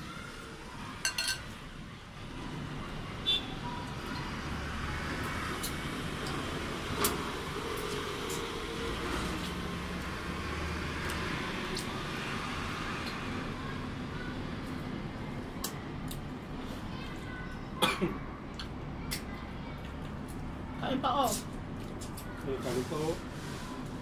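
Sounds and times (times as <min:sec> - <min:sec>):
cough-like throat sound: 0:17.8 - 0:18.2
chewing and eating sounds: 0:18.4 - 0:20.7, 0:21.3 - 0:22.5.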